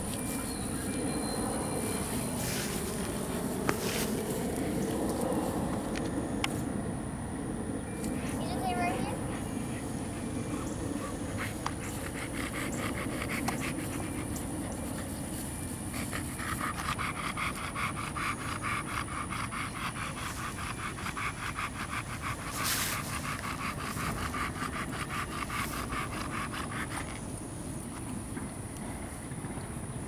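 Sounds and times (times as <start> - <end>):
dog panting rapidly: 8.2 - 27.2.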